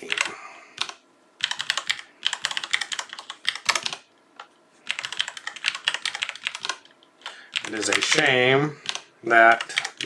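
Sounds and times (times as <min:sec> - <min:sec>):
typing on a keyboard: 0:00.0 - 0:04.1, 0:04.9 - 0:08.2, 0:08.8 - 0:10.0.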